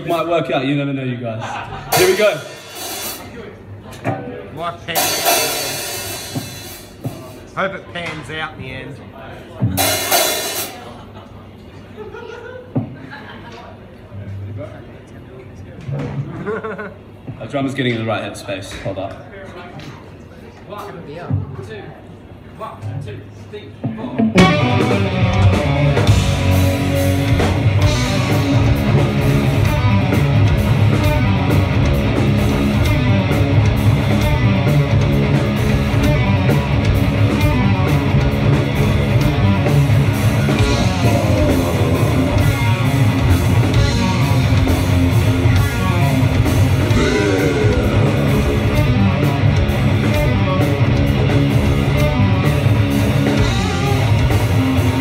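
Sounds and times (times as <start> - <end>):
heavy rock band playing: 1.9 - 3.3, 4.9 - 7.3, 9.7 - 10.9, 24.2 - 55.0.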